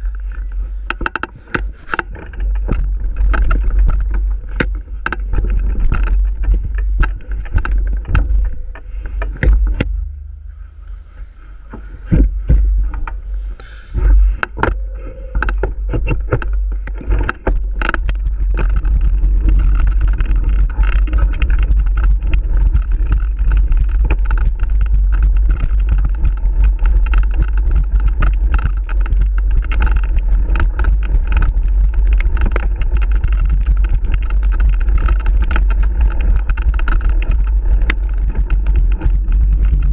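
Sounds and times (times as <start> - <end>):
bike rattling over bumps: 0.0 - 39.9
wind buffeting microphone: 0.0 - 39.9.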